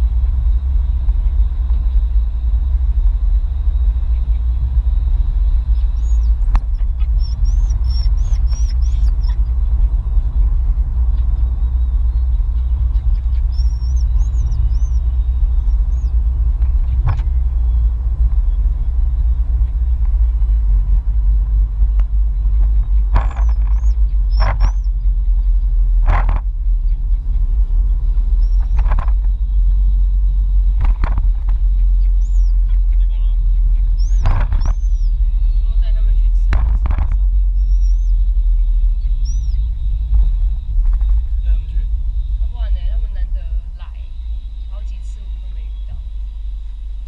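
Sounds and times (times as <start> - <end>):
car engine and road noise: 0.0 - 47.0
high chirping squeaks: 5.6 - 10.0, 11.0 - 20.6, 22.6 - 25.7, 26.8 - 29.9, 31.5 - 46.1.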